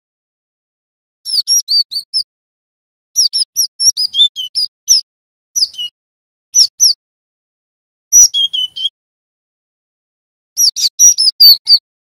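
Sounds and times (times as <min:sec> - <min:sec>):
bird singing high notes: 0:08.1 - 0:09.0.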